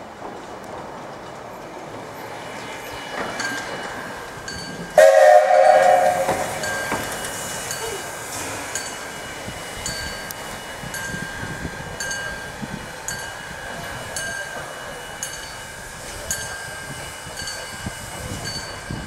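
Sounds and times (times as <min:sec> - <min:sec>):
locomotive running on tracks: 0:00.0 - 0:19.0
steam whistle blast: 0:05.0 - 0:06.7.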